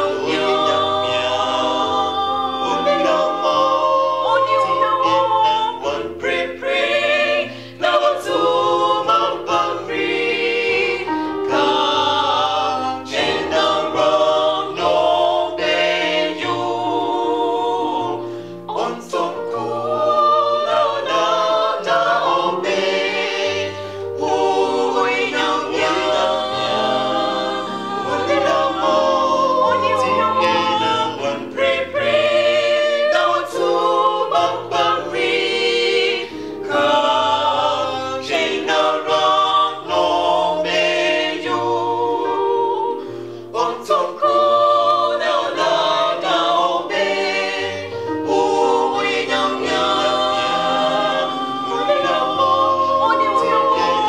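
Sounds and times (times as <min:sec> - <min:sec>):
vocal group singing gospel harmony: 0:00.0 - 0:54.0.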